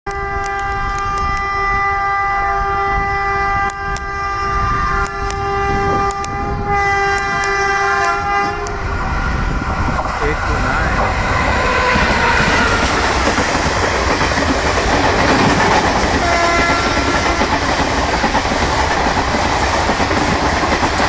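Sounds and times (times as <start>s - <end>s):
locomotive horn long blast: 0.1s - 9.8s, 16.2s - 17.4s
train rumble: 0.1s - 21.0s.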